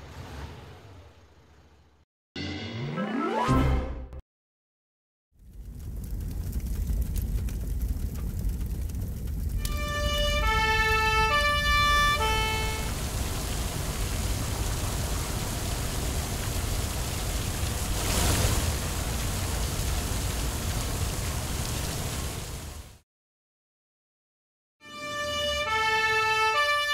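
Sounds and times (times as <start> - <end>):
low rumble: 5.4 - 12.2
two-tone fire truck siren: 9.6 - 13.0, 24.8 - 26.9
water jetting hiss: 9.7 - 23.0.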